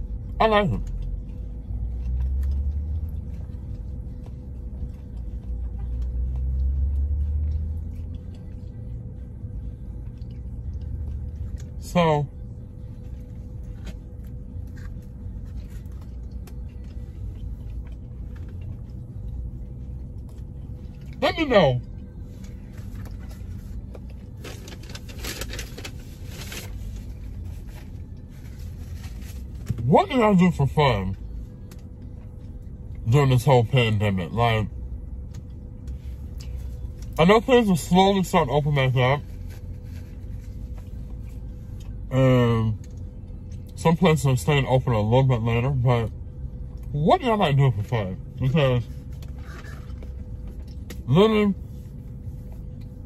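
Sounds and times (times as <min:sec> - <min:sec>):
faint steady hum: 0:00.0 - 0:53.0
paper rustling and crinkling: 0:24.4 - 0:29.7.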